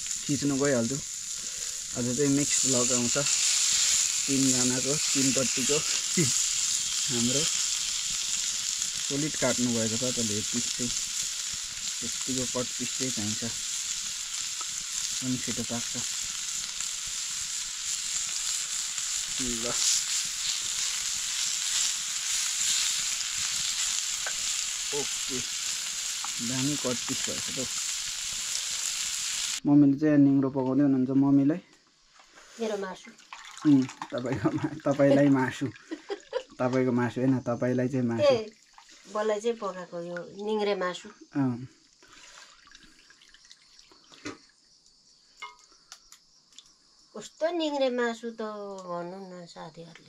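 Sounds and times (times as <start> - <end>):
meat sizzling in a pan: 0.0 - 29.6, 32.4 - 44.4, 45.4 - 45.7.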